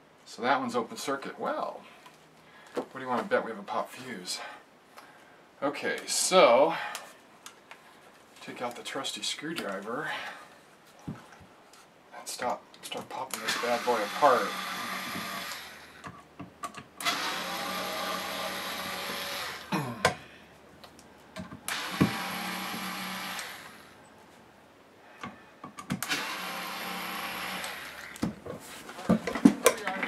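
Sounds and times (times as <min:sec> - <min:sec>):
electric screwdriver whirring: 0:13.4 - 0:16.0, 0:17.0 - 0:19.7, 0:21.7 - 0:23.9, 0:26.0 - 0:28.2.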